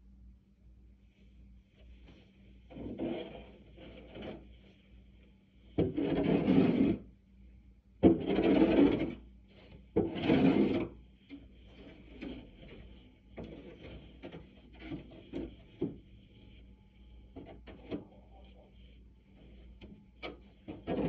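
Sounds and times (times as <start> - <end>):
plastic shovel scraping concrete: 2.7 - 4.5, 5.8 - 7.0, 8.0 - 9.2, 10.0 - 11.0, 20.2 - 21.0.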